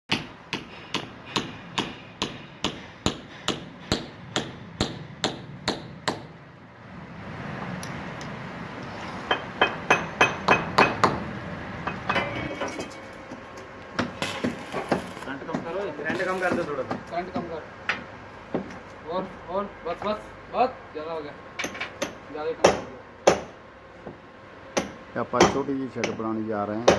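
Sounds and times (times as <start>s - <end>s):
hammer striking metal: 0.1s - 6.4s, 9.3s - 11.2s, 21.6s - 23.6s, 24.8s - 26.9s.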